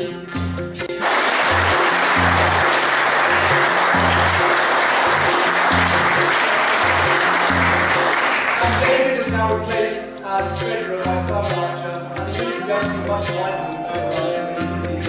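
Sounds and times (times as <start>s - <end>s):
background music with bass line: 0.0s - 15.0s
audience applauding: 1.0s - 9.2s.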